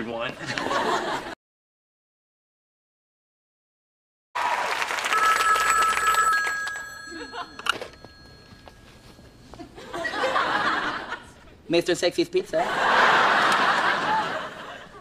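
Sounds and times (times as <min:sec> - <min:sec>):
telephone bell ringing: 0:05.0 - 0:11.0.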